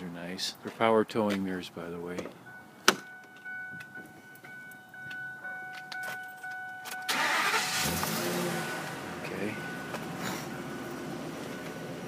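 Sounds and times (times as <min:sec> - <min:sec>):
truck engine starting: 0:06.9 - 0:12.0.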